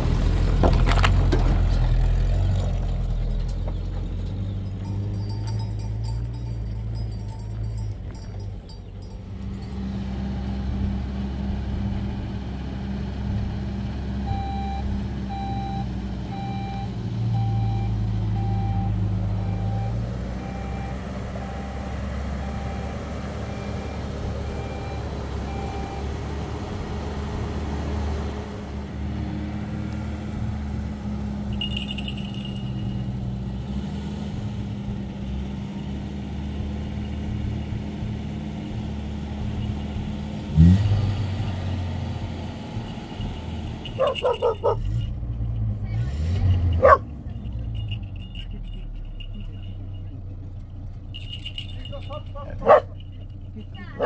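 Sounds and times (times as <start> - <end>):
truck engine running: 0.0 - 54.0
reversing alarm beeping: 14.3 - 26.1.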